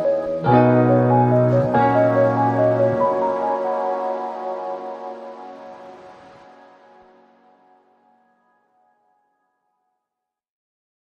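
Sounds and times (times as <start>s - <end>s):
soft held music chord: 0.0s - 8.2s.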